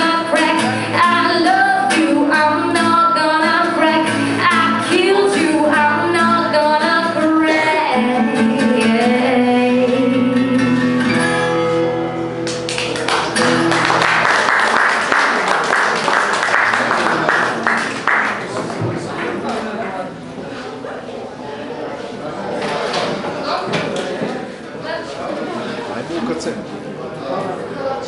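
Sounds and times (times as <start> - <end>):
woman singing: 0.0 - 10.9
acoustic guitar: 0.0 - 23.6
audience applauding: 12.4 - 18.8.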